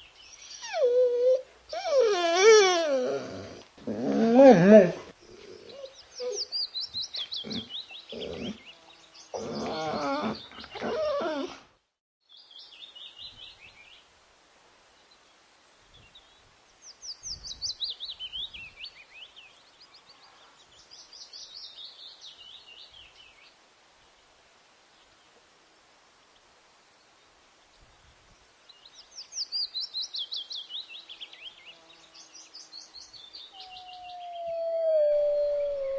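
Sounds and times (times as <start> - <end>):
fox howling calls: 0.6 - 5.1, 9.4 - 11.6, 33.6 - 35.9.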